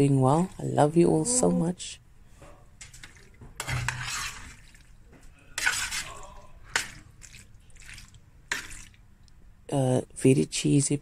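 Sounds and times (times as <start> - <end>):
spoon scraping wet food: 2.8 - 9.0.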